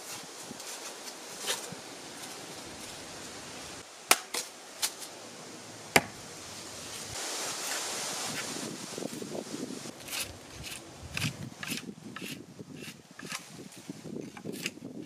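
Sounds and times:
low steady hiss: 0:00.0 - 0:14.2.

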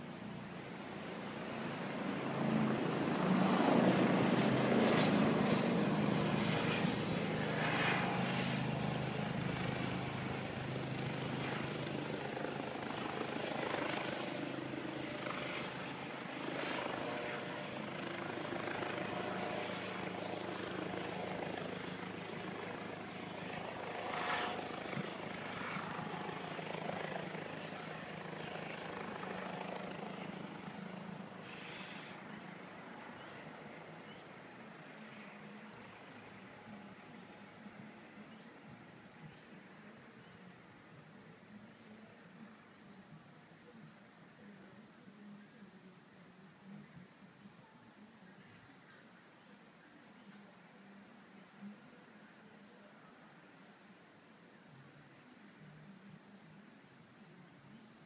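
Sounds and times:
helicopter rotor and engine hum: 0:00.0 - 0:40.6.

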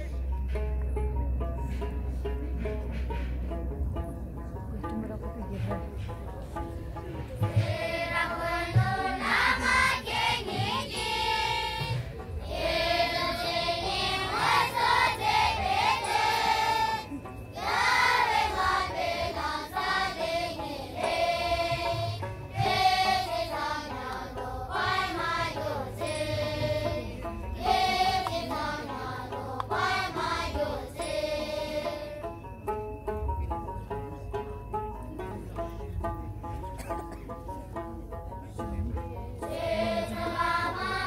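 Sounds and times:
choir singing: 0:07.4 - 0:32.4, 0:39.4 - 0:41.0.

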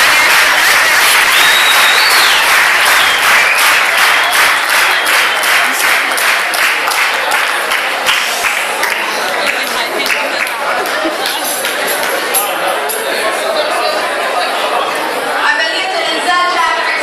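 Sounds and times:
audience applauding: 0:00.0 - 0:12.5.

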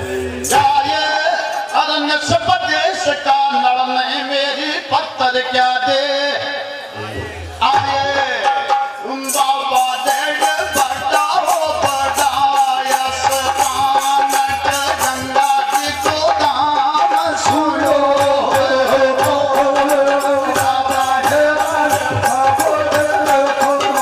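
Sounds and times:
hand drum rhythm: 0:07.6 - 0:24.0.

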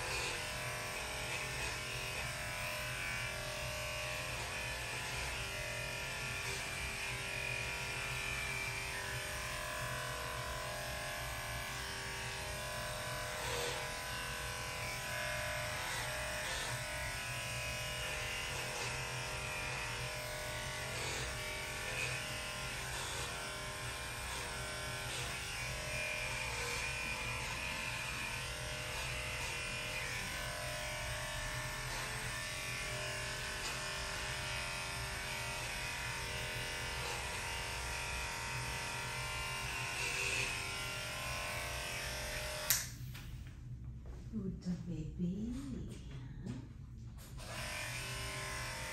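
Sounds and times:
electric pet clipper running: 0:00.0 - 0:43.3, 0:47.2 - 0:48.9.

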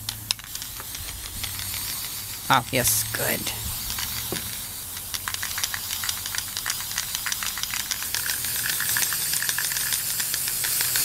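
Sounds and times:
aerosol spray can hissing: 0:00.0 - 0:11.0
crackling clicks: 0:04.9 - 0:11.0.

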